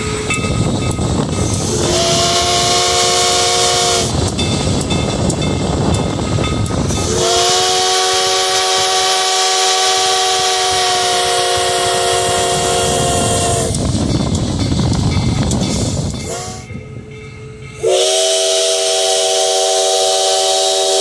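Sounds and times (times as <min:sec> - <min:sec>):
steam locomotive chime whistle: 0:00.0 - 0:14.0, 0:15.1 - 0:21.0
train hiss and rumble: 0:00.0 - 0:21.0.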